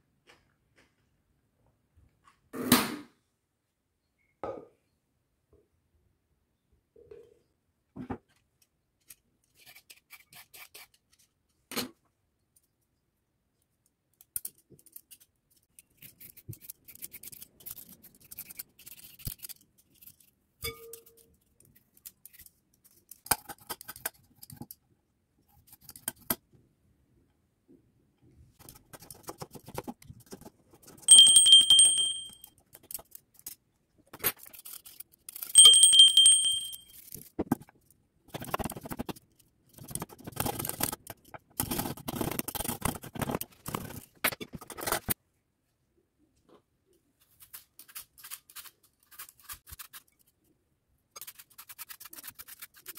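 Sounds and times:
bright metallic ting: 31.1 - 32.4, 35.6 - 36.9.

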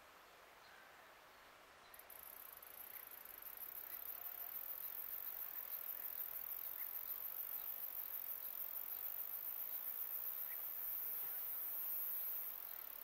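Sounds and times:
insects chirring: 2.0 - 13.0.

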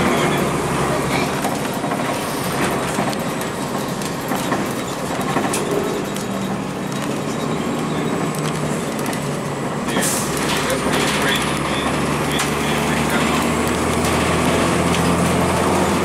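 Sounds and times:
bus diesel engine running: 0.0 - 16.0
road noise hum: 0.0 - 16.0
body rattles and clicks: 1.2 - 9.4.

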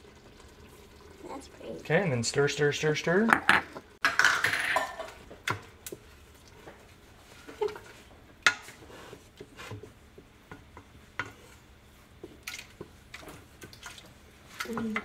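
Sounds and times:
utensil scraping and clinking in pot: 6.7 - 15.0.

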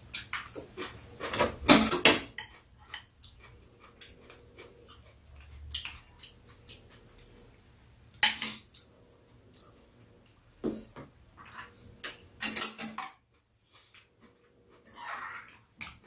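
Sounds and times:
spoons clinking against bowls: 12.0 - 13.1.

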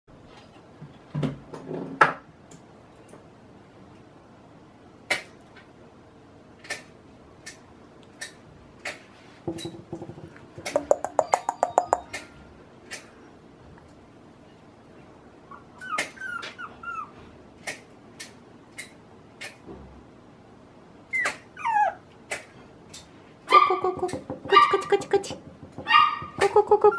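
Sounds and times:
quick taps: 9.5 - 12.2
puppy whimpering: 10.9 - 12.1, 15.5 - 17.2, 21.1 - 22.0, 25.9 - 26.9.

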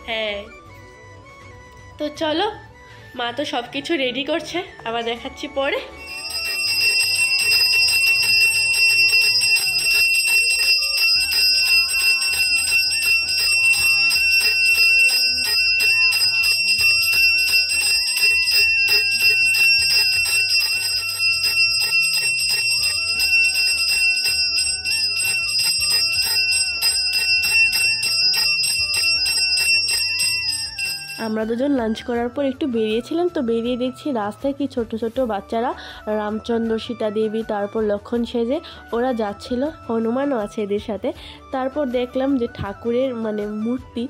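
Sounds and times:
ringing bells: 5.7 - 32.0.

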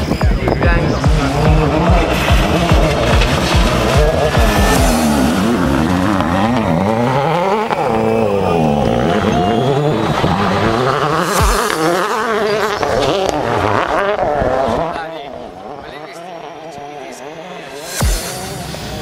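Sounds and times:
rally car engine revving: 0.0 - 19.0.

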